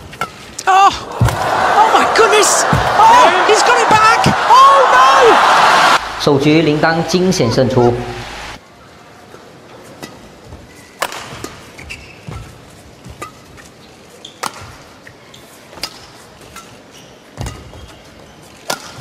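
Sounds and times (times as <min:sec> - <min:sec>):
shoes squeaking on court: 0:11.6 - 0:19.0
rackets hitting shuttlecock: 0:14.4 - 0:14.8, 0:18.6 - 0:19.0.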